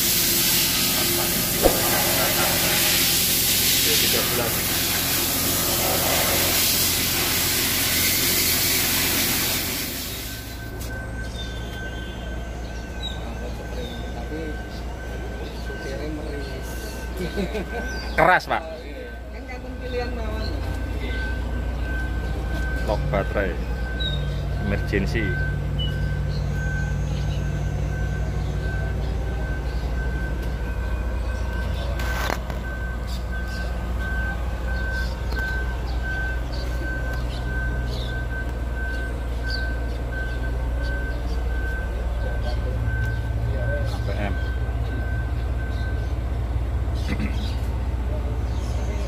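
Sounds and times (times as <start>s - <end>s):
loud steady hiss: 0.0s - 10.7s
truck engine rumbling: 0.0s - 49.0s
high-pitched beep: 9.8s - 18.2s, 20.3s - 46.1s.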